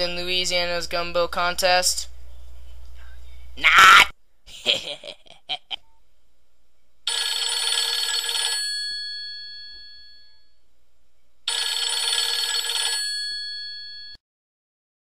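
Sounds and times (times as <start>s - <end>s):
telephone bell ringing: 7.1s - 10.6s, 11.5s - 14.2s.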